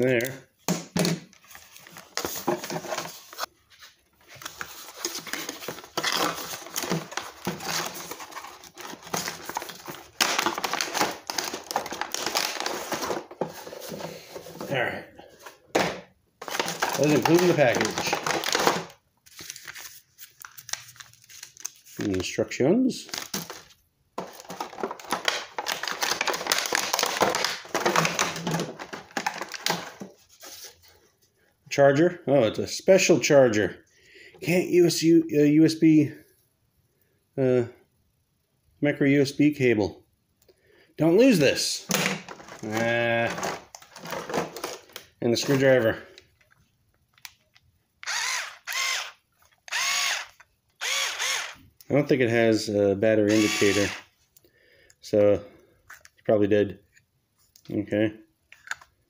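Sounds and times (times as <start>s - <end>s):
cardboard and plastic packaging rustling: 1.0s - 31.2s, 41.2s - 47.3s, 53.3s - 54.3s.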